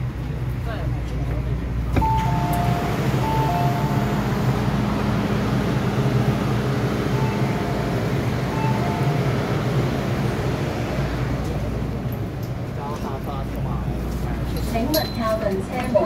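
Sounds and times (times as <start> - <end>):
electric train running: 2.0 - 12.5.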